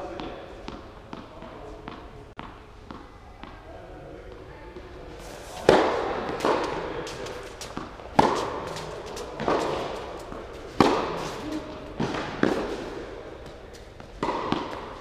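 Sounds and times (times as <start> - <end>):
rackets hitting tennis ball: 4.3 - 15.0.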